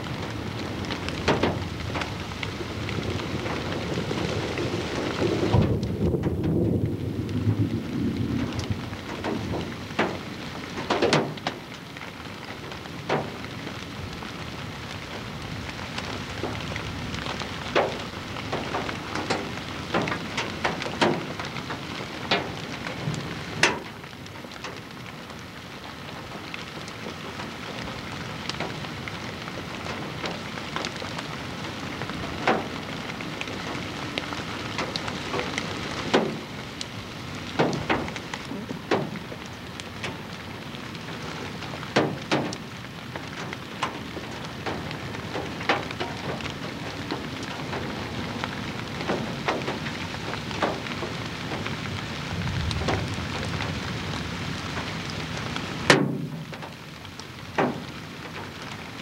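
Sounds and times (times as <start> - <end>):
sharp crackles and pops: 0.0 - 59.0
wind hissing over microphone: 0.2 - 11.6.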